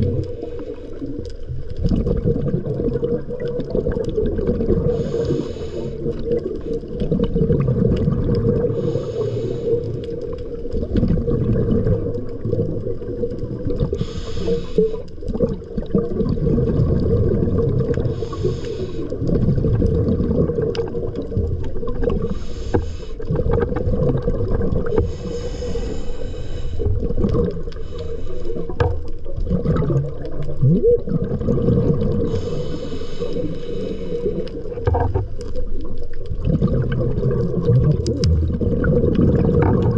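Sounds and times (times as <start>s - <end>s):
exhaled breath bubbling: 0.0s - 39.9s
low underwater rumble: 0.0s - 39.9s.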